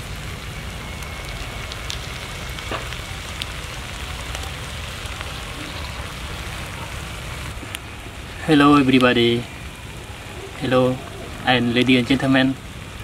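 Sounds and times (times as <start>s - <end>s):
snails sizzling on a grill: 0.0s - 13.0s.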